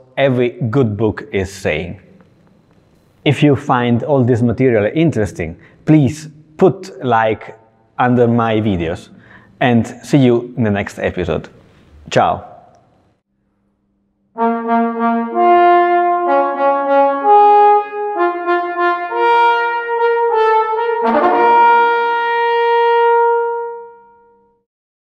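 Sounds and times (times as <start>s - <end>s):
trombone playing: 14.4s - 24.5s.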